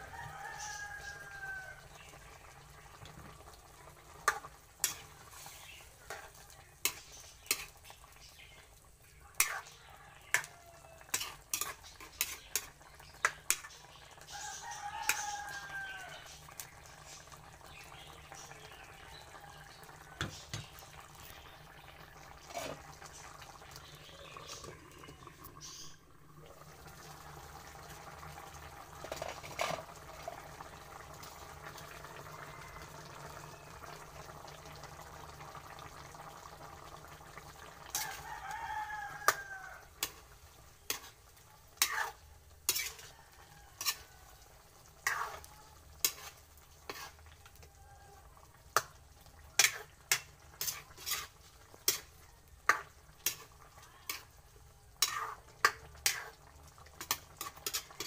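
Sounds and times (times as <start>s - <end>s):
rooster crowing: 0.0s - 2.0s, 9.7s - 11.3s, 14.3s - 16.4s, 19.1s - 20.4s, 32.0s - 34.1s, 37.9s - 40.0s, 43.0s - 44.6s, 47.5s - 48.5s
food simmering in a pan: 0.0s - 58.0s
spatula scraping a metal pan: 4.2s - 7.8s, 11.1s - 12.7s, 22.4s - 22.9s, 41.8s - 43.1s, 43.7s - 44.1s, 45.0s - 47.3s, 49.6s - 53.5s, 55.0s - 56.4s, 57.0s - 58.0s.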